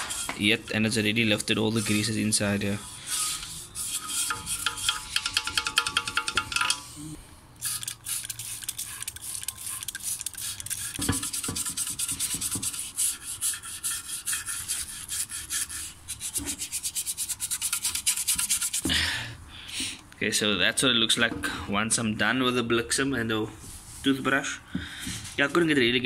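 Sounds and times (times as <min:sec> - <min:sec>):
toothbrush scrubbing metal: 0:00.0 - 0:06.8, 0:07.6 - 0:18.9.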